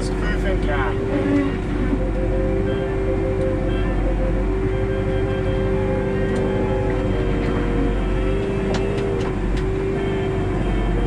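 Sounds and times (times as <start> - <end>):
hydraulic whine: 0.0 - 11.0
tractor engine running: 0.0 - 11.0.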